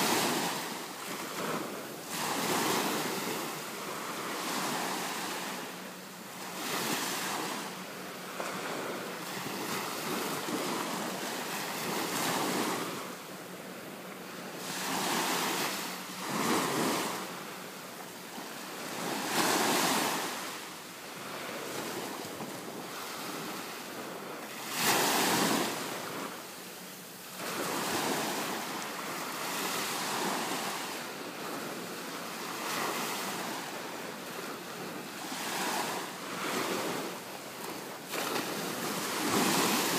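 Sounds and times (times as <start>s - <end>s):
ocean surf washing in: 0.0s - 13.2s, 27.3s - 39.9s.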